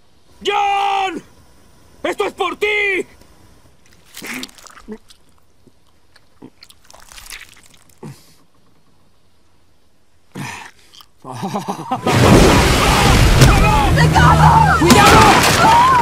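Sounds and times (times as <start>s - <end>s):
wet biting and chewing: 3.8s - 8.4s, 10.6s - 11.2s.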